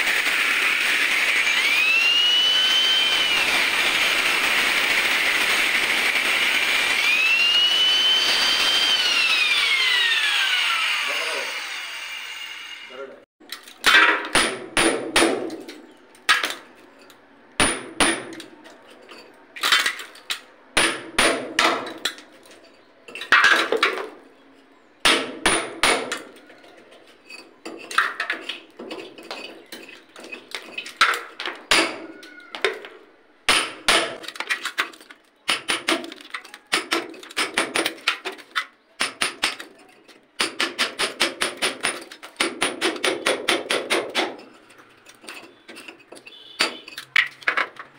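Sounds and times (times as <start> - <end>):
hammer striking chisel on brick: 13.9 - 15.7, 17.6 - 18.5, 20.8 - 22.0, 25.0 - 26.2, 33.5 - 34.2, 35.5 - 36.1, 36.7 - 38.0, 39.0 - 39.6, 40.4 - 44.4.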